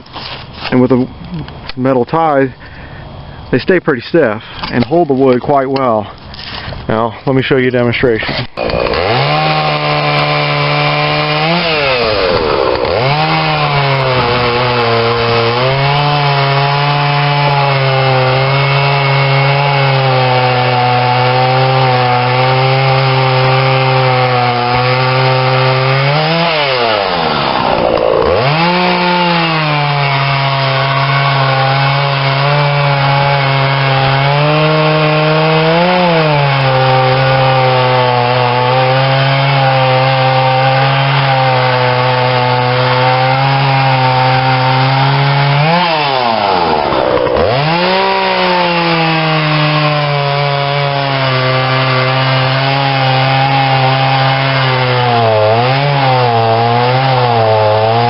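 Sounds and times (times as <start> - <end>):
chainsaw cutting logs: 8.2 - 58.0.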